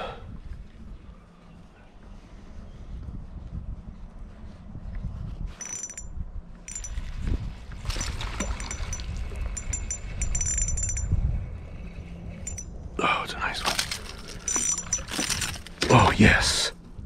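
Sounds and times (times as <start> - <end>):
fishing reel gears whirring: 5.6 - 6.1, 6.7 - 7.0, 8.0 - 11.1, 12.4 - 12.7, 14.0 - 15.7.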